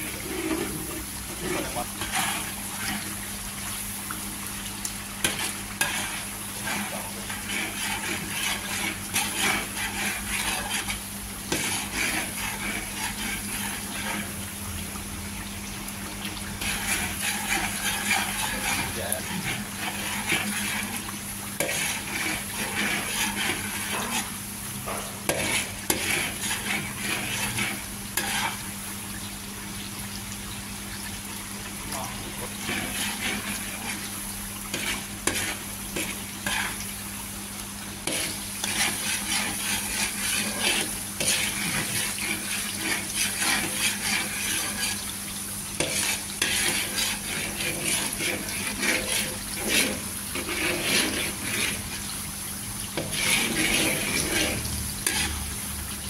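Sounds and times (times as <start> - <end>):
metal ladle scraping a wok: 0.0 - 3.1, 5.2 - 14.4, 16.6 - 28.6, 32.4 - 34.1, 34.7 - 36.9, 38.0 - 45.1, 45.8 - 52.0, 52.9 - 55.8
paste sizzling in oil: 0.0 - 56.0.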